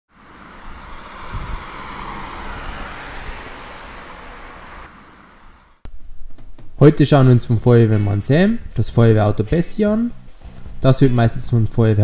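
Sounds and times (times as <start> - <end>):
vehicle driving past: 0.1 - 5.8.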